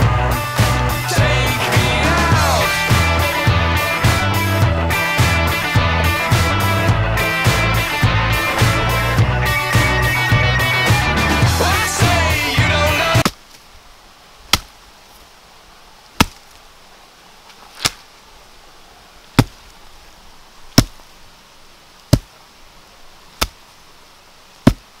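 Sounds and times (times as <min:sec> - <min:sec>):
chopping blows: 0:00.0 - 0:10.2, 0:10.8 - 0:13.4, 0:24.6 - 0:24.9
music: 0:00.0 - 0:13.2.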